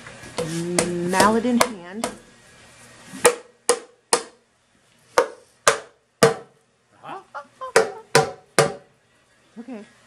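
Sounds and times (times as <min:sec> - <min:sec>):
mallet knocking metal oil pan: 0:07.8 - 0:08.8.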